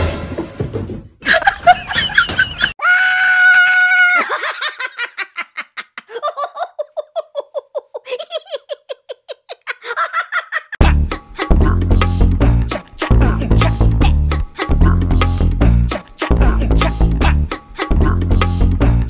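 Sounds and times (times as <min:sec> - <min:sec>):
person laughing rapidly: 0:01.2 - 0:03.0, 0:03.8 - 0:10.8
person squealing: 0:02.8 - 0:04.8.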